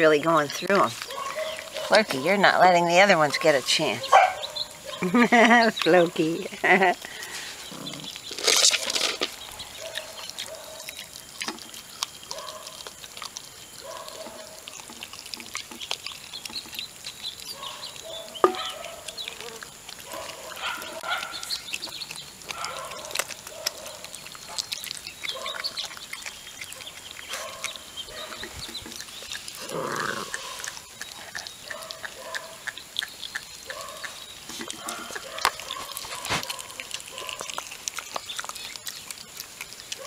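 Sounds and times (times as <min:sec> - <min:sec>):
puppies crunching bones: 0:00.0 - 0:40.0
teeth knocking on metal bowl: 0:18.4 - 0:18.7.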